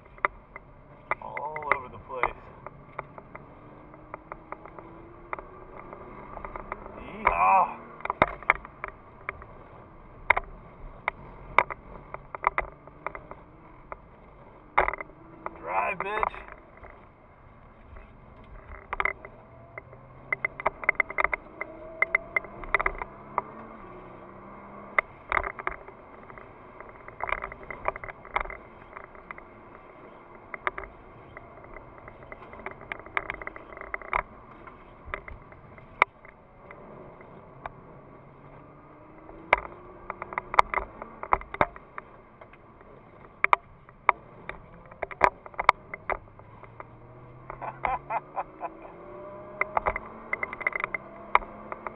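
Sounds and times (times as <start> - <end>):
car engine revving: 0.0 - 51.9
sharp clicks and rattles: 0.0 - 51.9.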